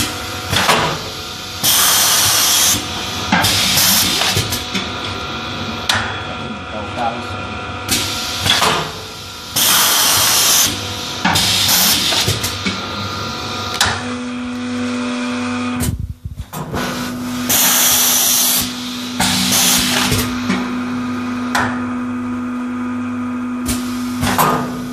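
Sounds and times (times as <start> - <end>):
machine hum: 0.0 - 24.9.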